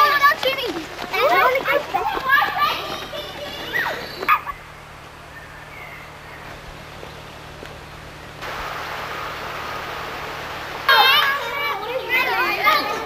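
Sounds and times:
faint outdoor ambience: 0.0 - 13.0
camcorder hum and hiss: 4.2 - 13.0.

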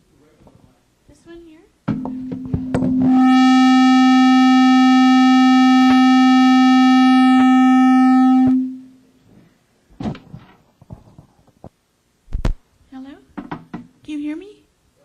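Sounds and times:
buzzy tone over public address: 2.2 - 9.1.

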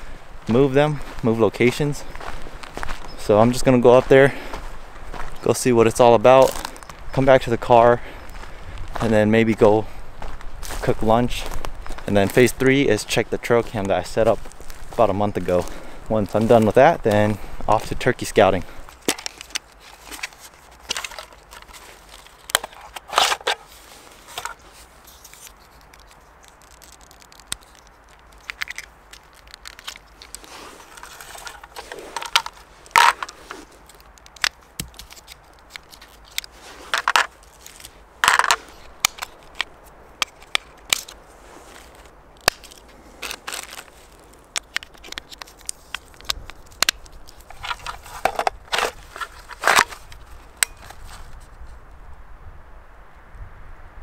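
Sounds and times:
batteries rattling: 18.8 - 51.3
plastic case clicking: 18.9 - 23.6, 25.4 - 41.1, 44.5 - 51.0.

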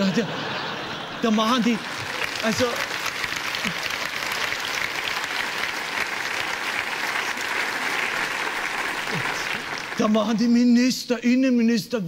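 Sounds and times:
audience applauding: 1.2 - 10.6.

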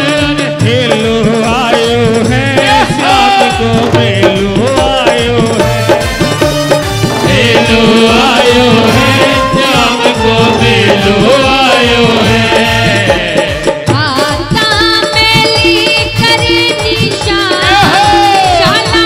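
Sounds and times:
music with steady beat: 0.0 - 19.0
woman singing through a pa: 13.8 - 19.0.

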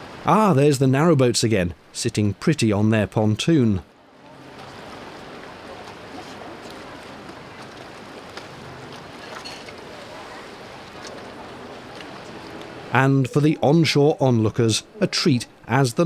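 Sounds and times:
rushing water: 0.0 - 16.0
wind: 0.0 - 16.0
boat engine humming: 4.0 - 15.8.

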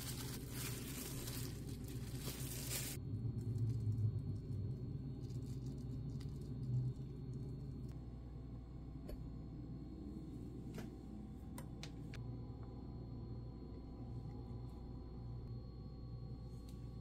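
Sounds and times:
cling film crinkling: 0.0 - 7.5
low steady hum: 0.0 - 17.0.

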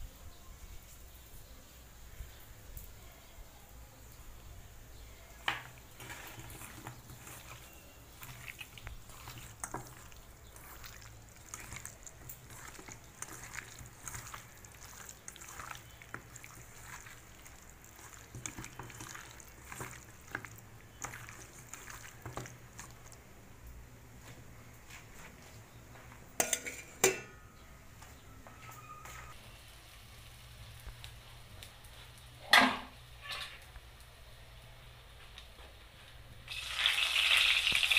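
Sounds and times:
wet squelching of hand-mixed meat: 5.7 - 23.5.

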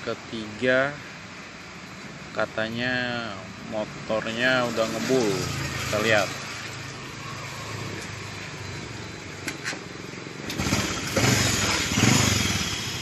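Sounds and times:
motorcycle engine revving: 10.4 - 13.0.

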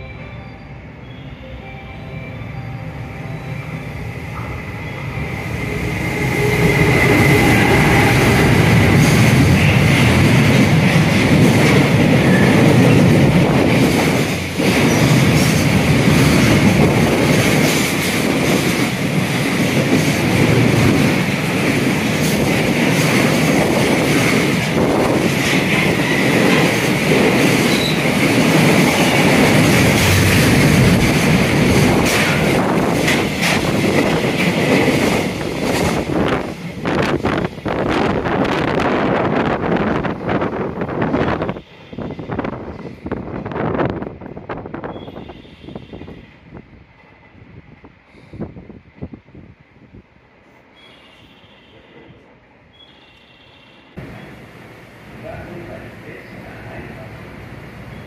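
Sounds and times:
train clickety-clack on rails: 4.1 - 58.0
high-pitched wheel squeal: 52.8 - 54.3.

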